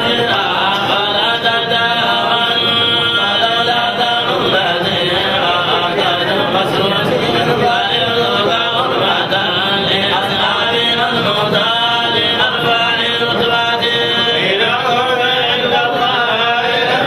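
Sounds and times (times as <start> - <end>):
men chanting: 0.0 - 17.0.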